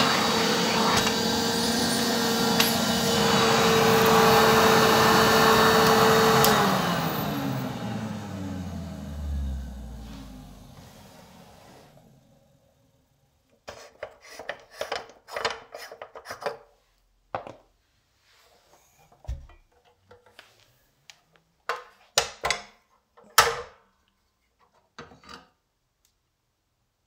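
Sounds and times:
vacuum cleaner parts clicking: 0:00.0 - 0:07.4, 0:13.5 - 0:16.7.

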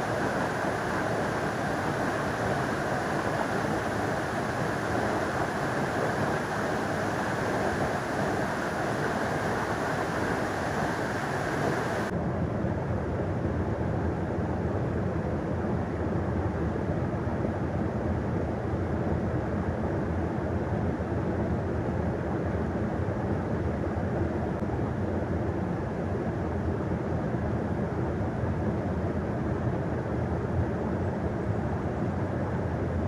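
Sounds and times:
river water rushing: 0:00.0 - 0:12.1.

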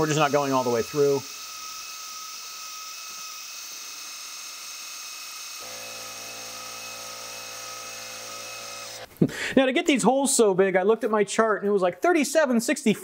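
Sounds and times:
milling machine spindle whine: 0:00.0 - 0:09.0.

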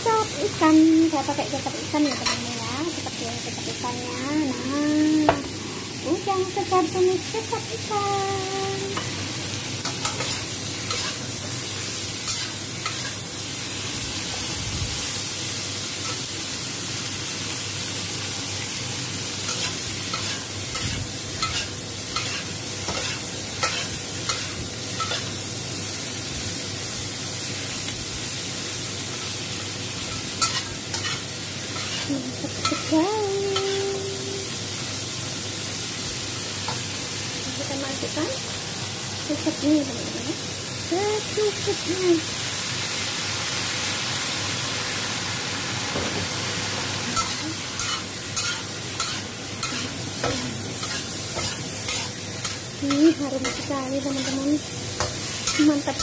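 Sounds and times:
shrimp sizzling in oil: 0:00.0 - 0:56.0
spatula scraping a wok: 0:01.9 - 0:02.5, 0:09.8 - 0:13.2, 0:19.5 - 0:25.4, 0:30.0 - 0:33.0, 0:47.1 - 0:56.0.

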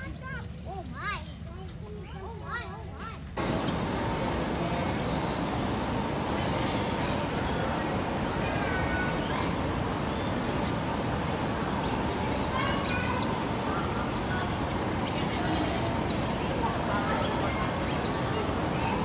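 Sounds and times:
small birds chirping: 0:00.0 - 0:19.0
background hiss: 0:03.1 - 0:19.0.

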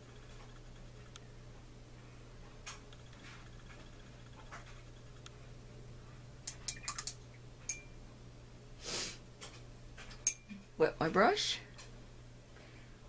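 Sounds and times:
steady low hum: 0:00.0 - 0:13.0
ringing clink: 0:07.7 - 0:07.9.

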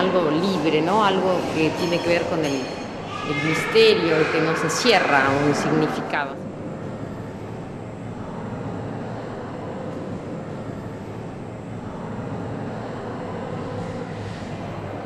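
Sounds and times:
low rumble: 0:05.2 - 0:15.0.

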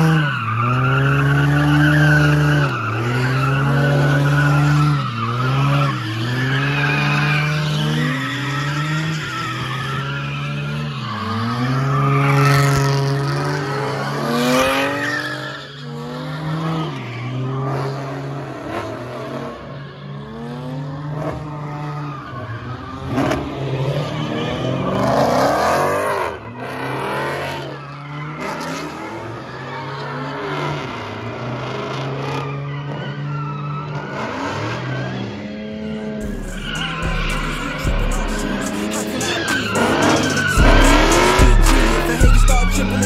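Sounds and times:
car engine revving high: 0:00.0 - 0:15.4, 0:34.1 - 0:43.0
tyres squealing: 0:36.3 - 0:43.0.

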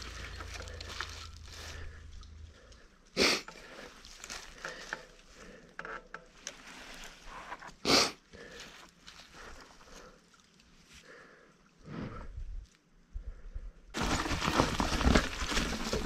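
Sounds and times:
bike rolling on dirt trail: 0:00.0 - 0:02.8, 0:14.0 - 0:16.0.

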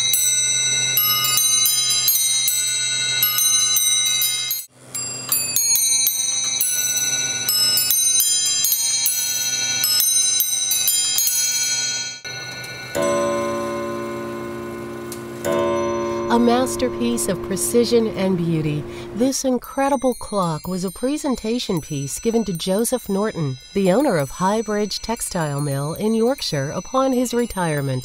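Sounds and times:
clock bells chiming: 0:00.0 - 0:28.0
clock gong strike: 0:12.3 - 0:19.4.

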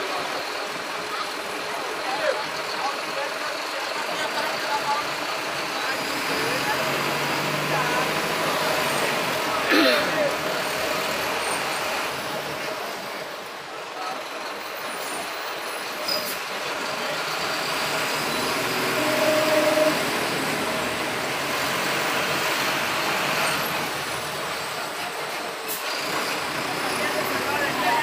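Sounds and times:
vehicle engine and road noise: 0:00.0 - 0:28.0.

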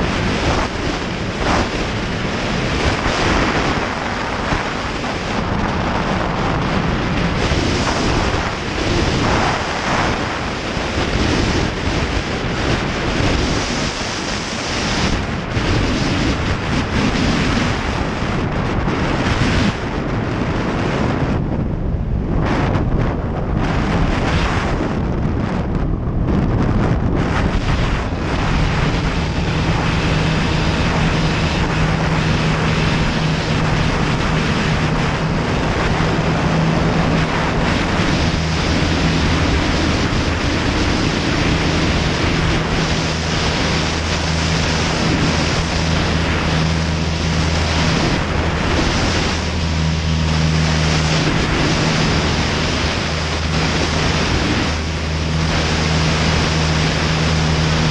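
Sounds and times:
aircraft engine and propeller: 0:00.0 - 0:57.9
wind noise on microphone: 0:00.0 - 0:57.9.

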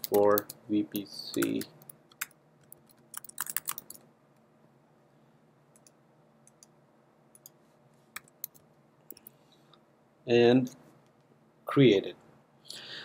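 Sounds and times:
typing on computer keyboard: 0:01.3 - 0:04.0.

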